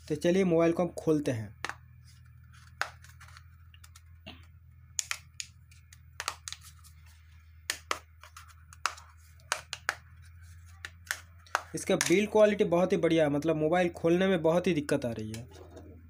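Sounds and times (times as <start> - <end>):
low steady hum: 0.0 - 16.0
plastic phone cover clicking: 5.0 - 6.6.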